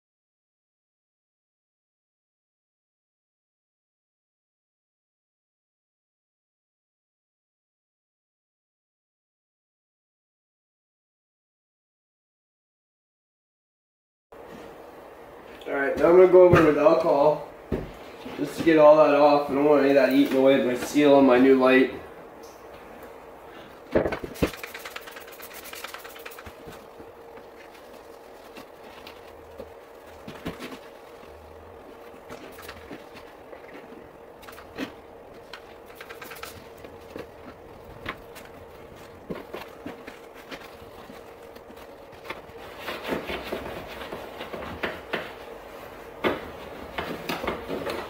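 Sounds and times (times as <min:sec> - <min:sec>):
faint hum: 0:14.4 - 0:48.0
cloth rag rubbing painted metal: 0:24.3 - 0:26.9.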